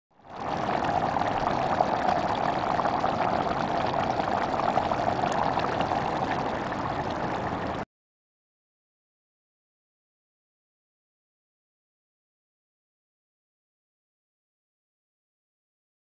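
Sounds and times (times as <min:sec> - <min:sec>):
curry bubbling and sizzling in pot: 0:00.2 - 0:07.8.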